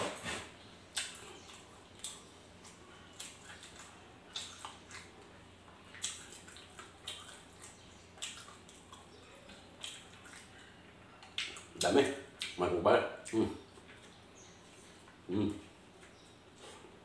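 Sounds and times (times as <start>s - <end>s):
chewing and lip smacks: 0.9s - 12.6s.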